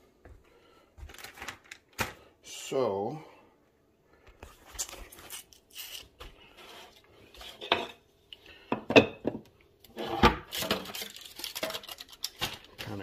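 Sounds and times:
kitchenware knocking and clinking: 0:08.7 - 0:11.0.

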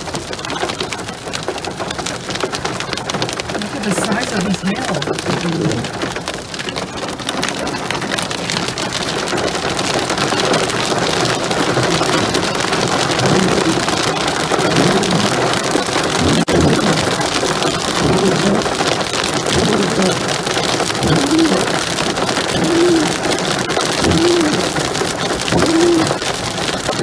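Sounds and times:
hail pelting car roof: 0:00.0 - 0:27.0.

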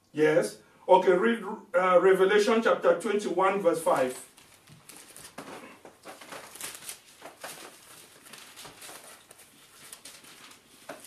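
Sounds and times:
paper pages turning: 0:03.9 - 0:11.0.

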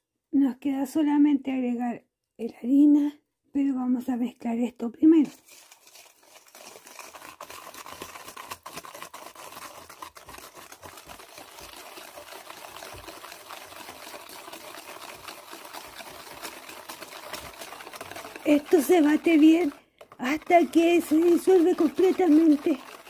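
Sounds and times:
liquid sloshing: 0:05.2 - 0:23.0
wire whisk clattering in metal bowl: 0:09.8 - 0:23.0.

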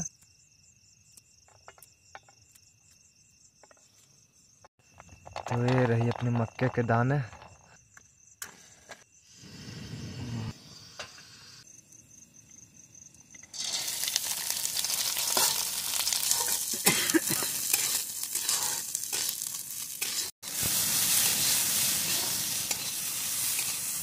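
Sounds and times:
corn kernels sizzling in hot oil: 0:13.4 - 0:24.0
metal spatula scraping: 0:15.1 - 0:16.7, 0:17.5 - 0:20.4, 0:21.1 - 0:24.0.

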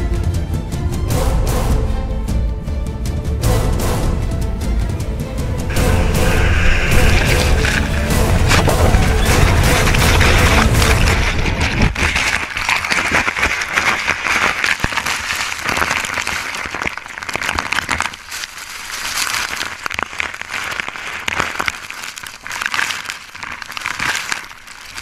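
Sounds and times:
deep rumble: 0:04.3 - 0:13.0
whitewater churning and splashing: 0:05.7 - 0:25.0.

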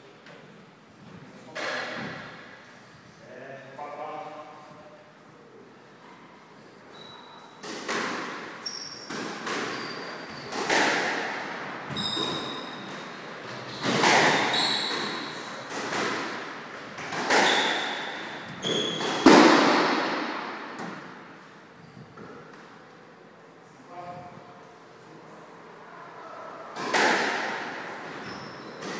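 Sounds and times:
squash ball hits echoing: 0:07.6 - 0:13.1, 0:13.7 - 0:21.2, 0:26.7 - 0:27.9
shoes squeaking on wooden floor: 0:08.6 - 0:11.2, 0:11.8 - 0:16.0, 0:16.8 - 0:19.3, 0:28.0 - 0:28.9.

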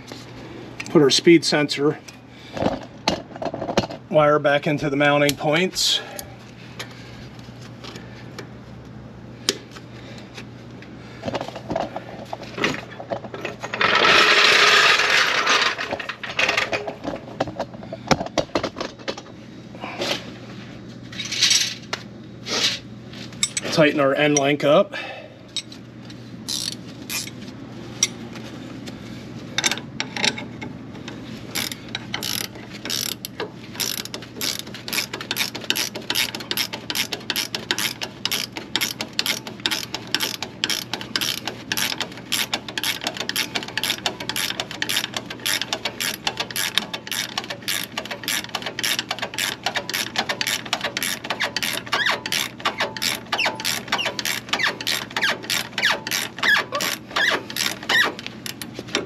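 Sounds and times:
hand ratchet clicking: 0:26.5 - 0:27.4, 0:31.5 - 0:58.7.

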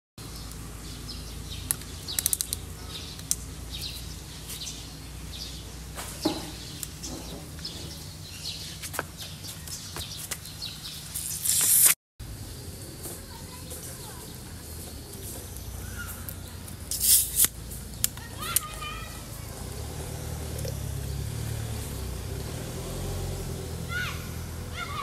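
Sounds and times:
birds chirping: 0:00.2 - 0:11.4, 0:12.3 - 0:25.0
handling clicks: 0:01.7 - 0:02.6.

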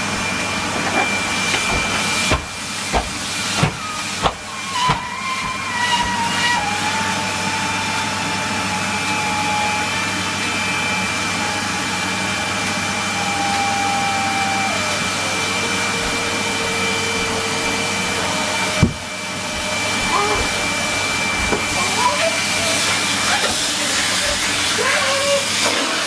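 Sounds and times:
vacuum cleaner whining: 0:00.0 - 0:26.0.

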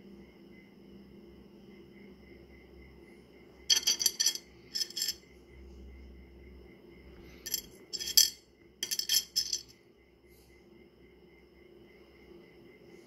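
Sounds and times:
stones clinking together: 0:03.7 - 0:05.2, 0:07.5 - 0:09.7.

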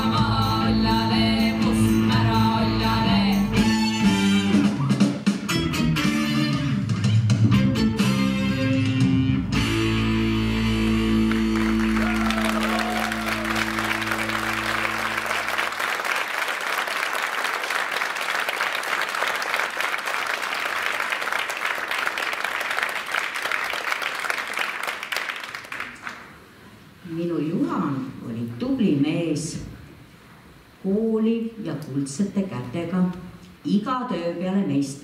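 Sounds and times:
folk dance music: 0:00.0 - 0:17.3
audience applauding: 0:10.5 - 0:26.4.

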